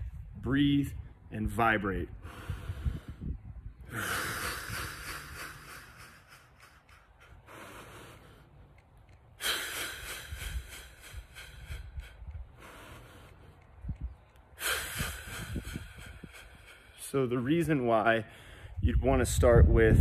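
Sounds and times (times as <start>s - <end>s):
man breathing deeply: 2.1s - 17.2s, 18.2s - 18.8s.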